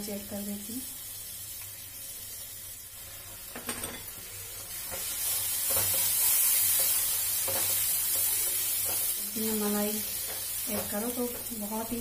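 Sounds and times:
sizzling in a frying pan: 0.0s - 12.0s
spatula scraping a pan: 3.2s - 9.2s.

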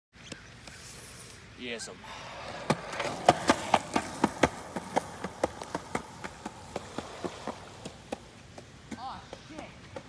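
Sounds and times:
skateboard wheels clacking on concrete: 2.5s - 10.0s.

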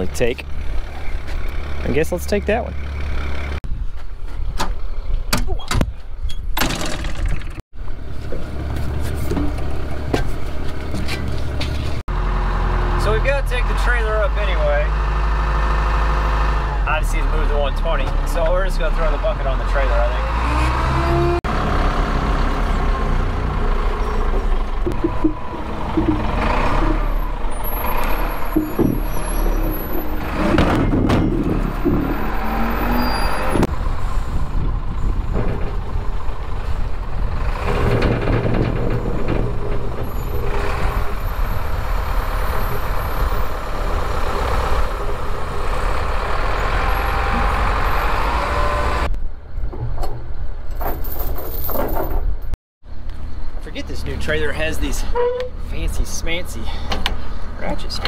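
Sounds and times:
heavy equipment engine running: 21.5s - 49.1s
knocks and clanks of gear: 49.6s - 52.5s.

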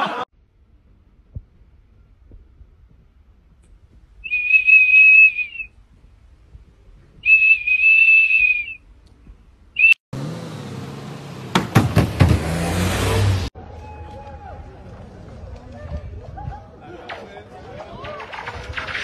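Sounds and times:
outdoor noise: 0.0s - 19.0s
shrill plastic whistle: 4.2s - 5.7s, 7.2s - 8.8s, 9.8s - 10.0s
knocks: 11.5s - 12.6s.

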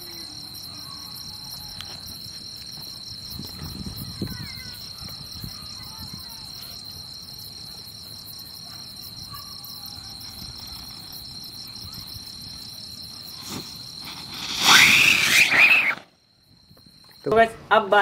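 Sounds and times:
crickets chirping: 0.0s - 18.0s
whistling rocket: 13.4s - 16.1s.

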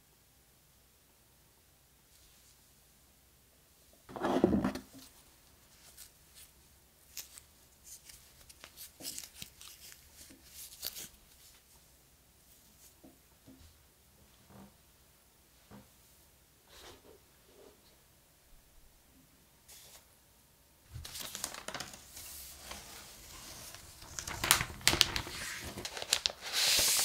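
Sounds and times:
cable wrap crinkling: 20.9s - 27.0s.

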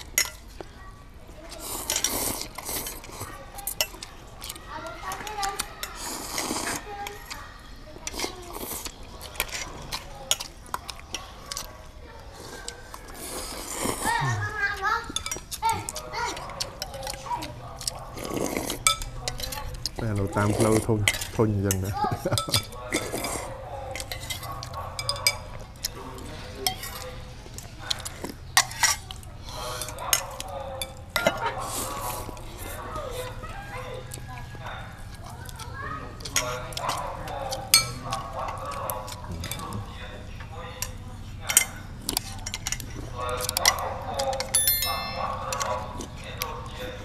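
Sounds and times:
noodles being slurped: 1.5s - 7.3s, 8.0s - 11.0s, 12.2s - 16.1s
chopsticks clicking on metal bowls: 15.1s - 18.0s, 18.8s - 20.0s, 21.0s - 26.0s, 35.1s - 39.8s, 40.8s - 46.5s.

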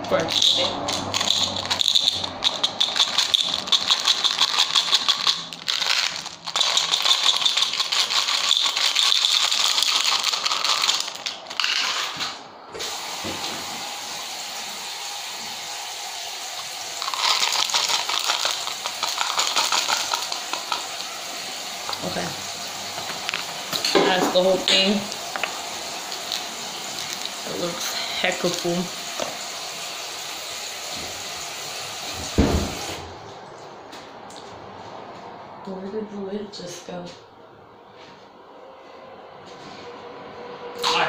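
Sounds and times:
mints rattling into plastic bottle: 0.2s - 12.2s, 17.0s - 21.2s, 23.0s - 27.6s.

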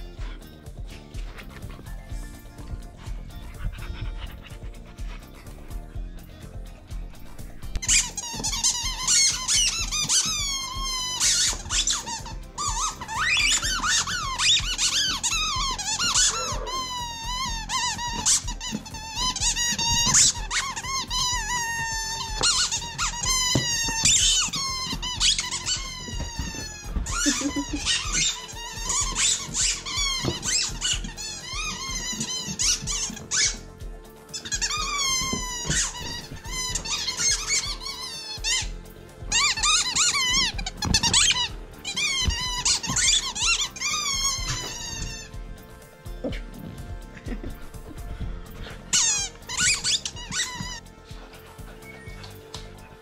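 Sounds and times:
squeaky toy squealing: 7.8s - 45.4s, 48.9s - 50.9s.

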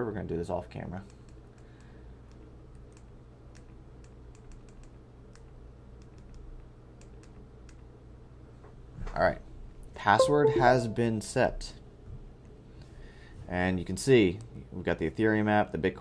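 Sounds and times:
soft button clicks: 10.2s - 11.1s.

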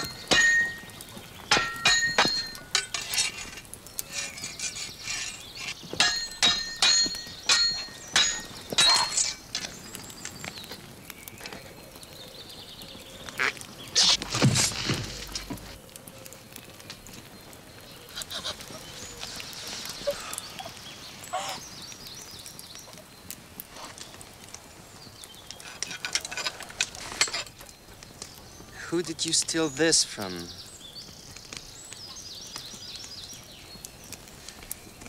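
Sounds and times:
swords clashing: 0.0s - 0.8s, 6.0s - 9.6s.

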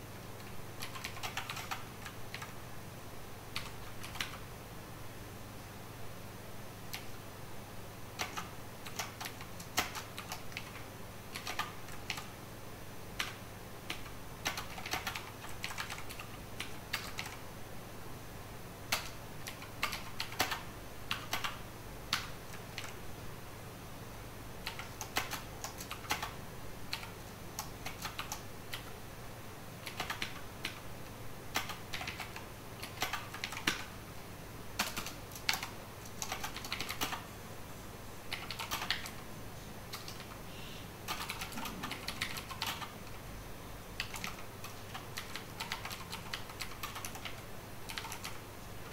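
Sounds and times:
computer keyboard typing: 0.4s - 2.6s, 3.5s - 4.4s, 8.2s - 12.3s, 13.2s - 17.4s, 18.9s - 23.0s, 24.6s - 28.9s, 29.8s - 30.8s, 31.5s - 33.9s, 34.8s - 37.3s, 38.3s - 39.2s, 39.9s - 40.4s, 41.0s - 43.2s, 44.0s - 48.9s.

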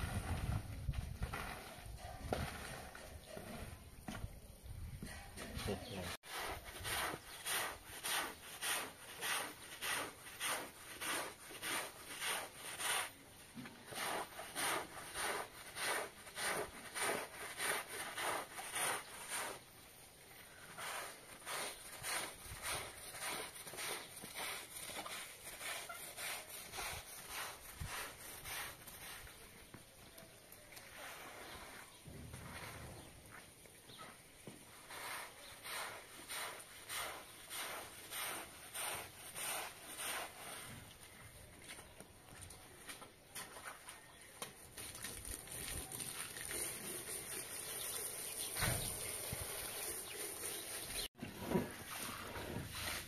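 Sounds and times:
push broom scrubbing wet carpet: 6.2s - 19.7s, 20.7s - 29.2s, 34.7s - 40.8s.

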